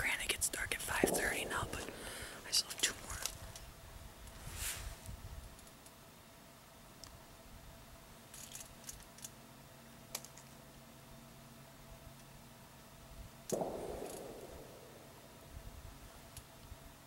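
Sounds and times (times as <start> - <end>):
faint clothing and gear rustles: 4.3 - 5.2
sharp click: 13.5 - 14.9.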